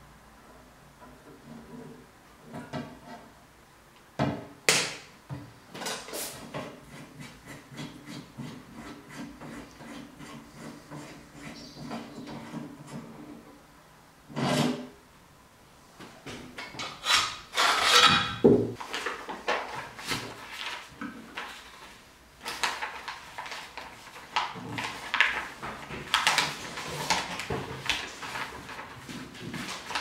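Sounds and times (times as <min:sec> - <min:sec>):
knock: 0:18.4 - 0:18.8
paper rustling and crackling: 0:18.8 - 0:30.0.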